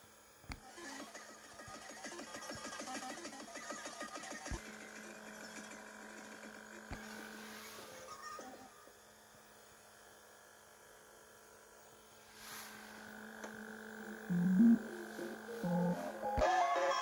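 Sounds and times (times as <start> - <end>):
faint hum with thin whine: 0.0 - 1.9, 4.5 - 17.0
low-pitched tone: 14.0 - 16.4.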